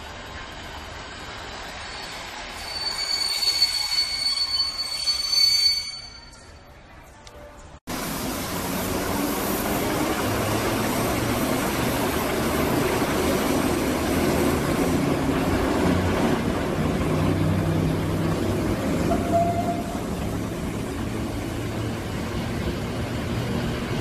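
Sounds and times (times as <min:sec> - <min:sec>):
wheels rumbling on rail: 0:00.0 - 0:05.1, 0:07.3 - 0:24.0
locomotive motors humming: 0:08.0 - 0:24.0.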